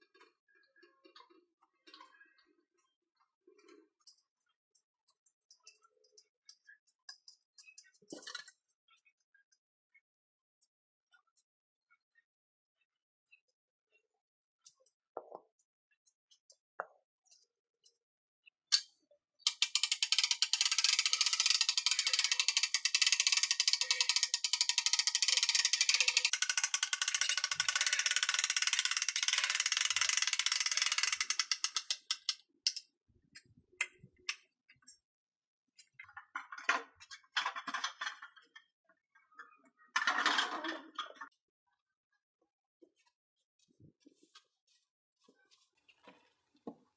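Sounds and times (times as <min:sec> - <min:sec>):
winch ratchet clicking fast: 0:19.5 - 0:32.4.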